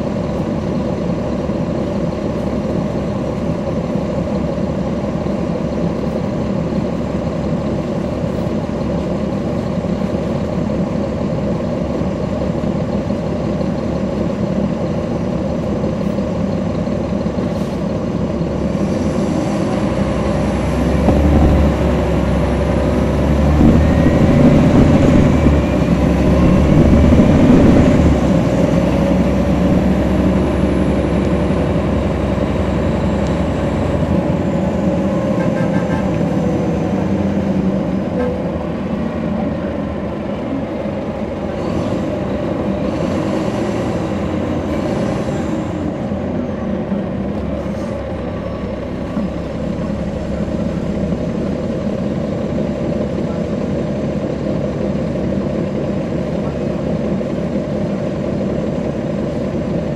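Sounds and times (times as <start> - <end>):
bus diesel engine running: 0.0 - 59.9
rising acceleration whine: 20.1 - 33.5.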